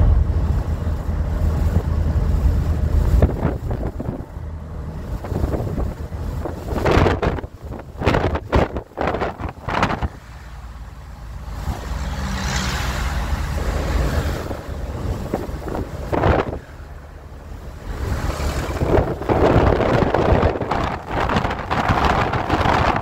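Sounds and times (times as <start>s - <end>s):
road and engine rumble: 0.0s - 23.0s
wind noise: 0.0s - 23.0s.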